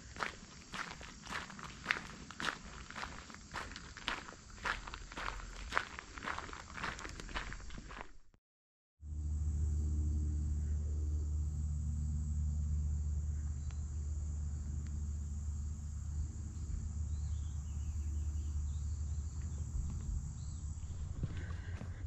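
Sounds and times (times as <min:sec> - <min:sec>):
high insect chorus: 0:00.0 - 0:08.0, 0:09.2 - 0:22.0
constant low rumble: 0:09.1 - 0:22.0.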